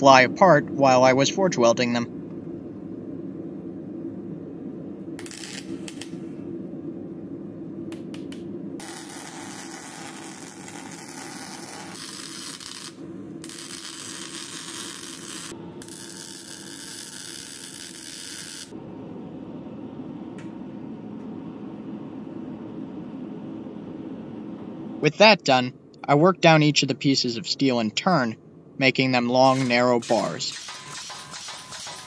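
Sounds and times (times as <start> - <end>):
arc welding crackling hiss: 5.2 - 6.1, 8.8 - 18.7, 29.4 - 32.0.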